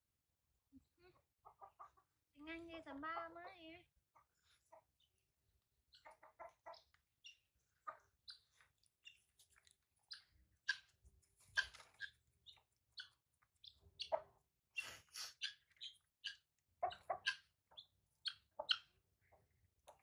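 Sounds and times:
animal chirps and calls: 10.0 - 19.0.

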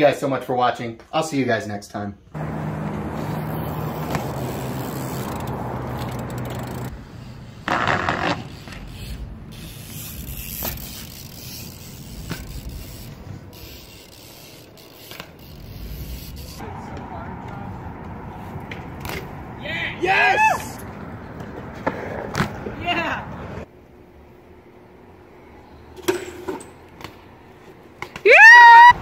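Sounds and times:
bike tyres rolling on concrete: 2.4 - 23.7.

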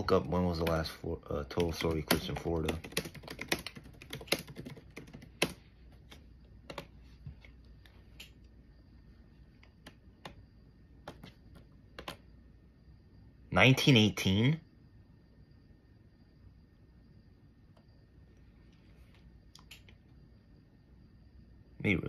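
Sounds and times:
typing on computer keyboard: 0.3 - 6.9, 11.0 - 12.2.

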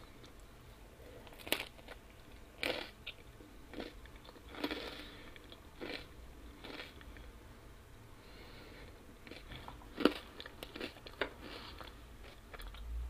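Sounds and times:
person chewing crunchy pizza: 1.2 - 7.1, 9.2 - 12.8.

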